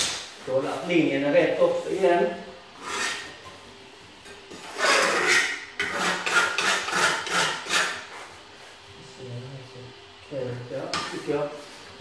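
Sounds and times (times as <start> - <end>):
scraping on concrete floor: 2.8 - 3.6, 4.5 - 8.8.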